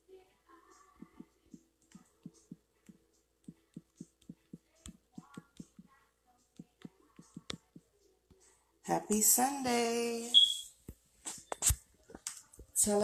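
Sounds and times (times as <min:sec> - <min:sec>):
faint voice or singing: 0:00.0 - 0:10.4
soft tapping: 0:01.0 - 0:05.9, 0:06.6 - 0:07.9.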